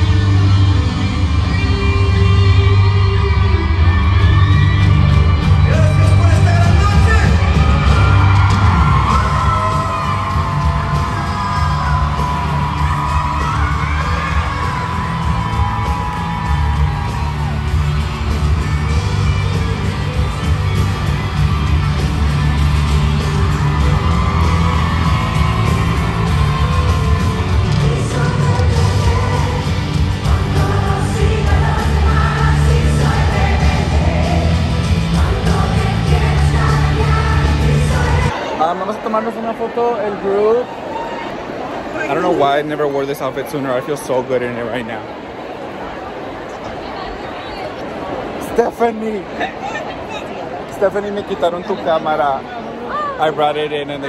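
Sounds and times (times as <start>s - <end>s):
pop-rock music over loudspeakers: 0.0s - 39.0s
crowd yelling and cheering: 0.0s - 54.0s.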